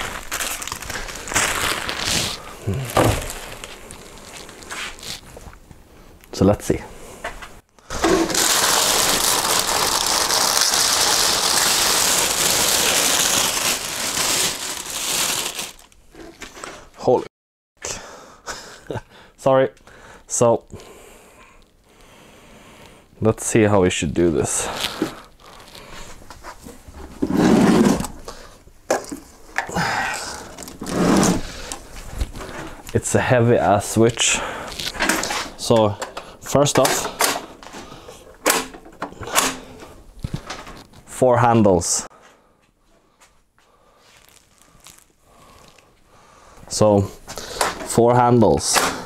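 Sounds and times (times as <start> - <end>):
plastic bag crinkling and rustling: 0.0 - 5.6, 7.9 - 16.9, 24.5 - 27.2, 28.0 - 33.1, 34.6 - 41.1, 44.0 - 46.0
man grunting and breathing heavily: 2.4 - 3.3, 29.6 - 30.7.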